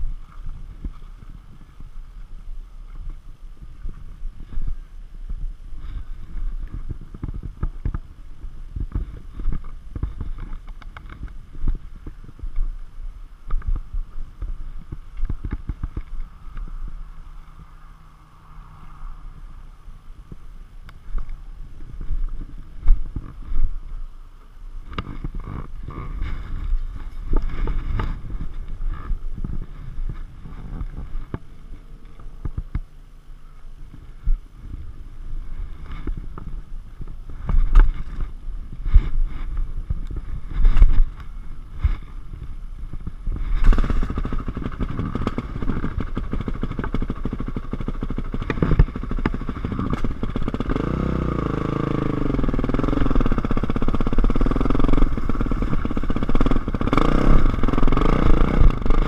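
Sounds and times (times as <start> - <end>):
wind rumble on microphone: 0.0 - 59.0
knocks and rubbing on microphone: 8.7 - 12.7, 35.5 - 50.7.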